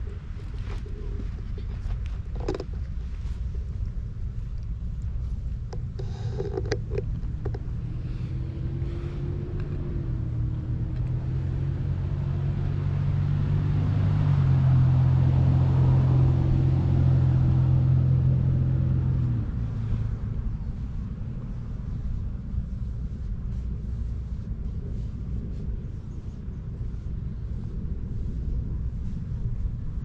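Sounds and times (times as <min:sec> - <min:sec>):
vehicle engine humming: 0:00.0 - 0:30.0.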